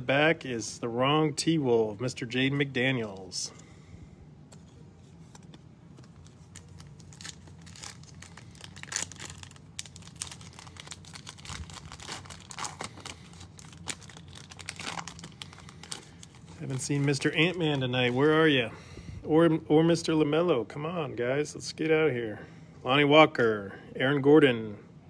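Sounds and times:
plastic and foil crinkling: 5.2s - 18.2s.

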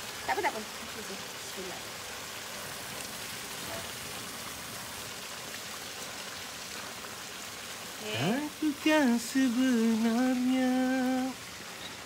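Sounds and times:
broth hissing in a wok: 0.0s - 9.0s.

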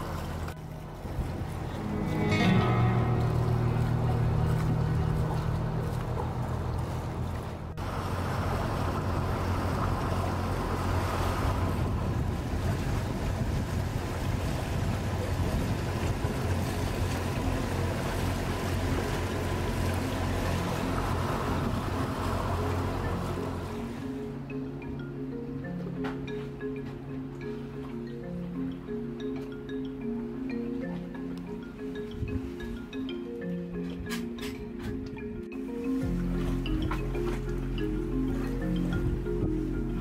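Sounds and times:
wind buffeting microphone: 0.0s - 23.7s
water rushing past hull: 0.0s - 24.5s
low engine rumble: 0.0s - 40.0s
music: 1.0s - 6.7s, 17.4s - 40.0s.

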